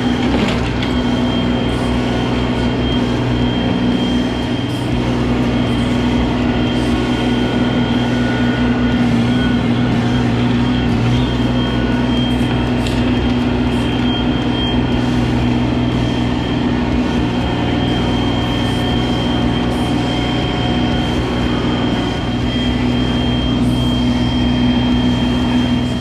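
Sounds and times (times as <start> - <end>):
thin high whine: 0.0 - 26.0
tractor diesel engine running: 0.0 - 26.0.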